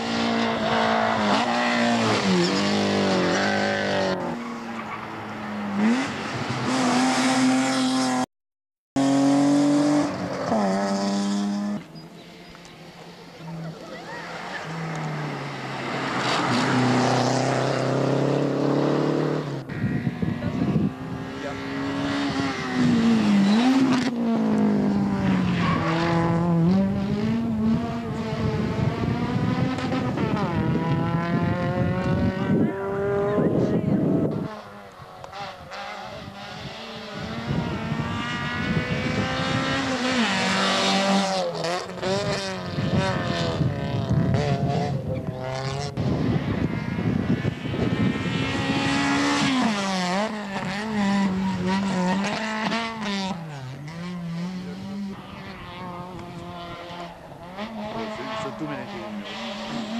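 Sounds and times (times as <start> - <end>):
rally car engine running: 19.2 - 59.9.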